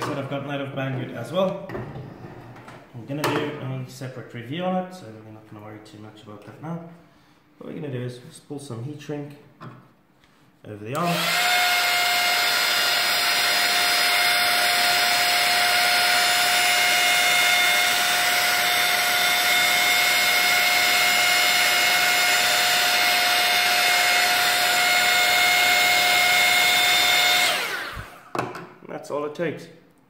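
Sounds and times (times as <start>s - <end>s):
hot-air gun fan whining: 10.9s - 28.6s.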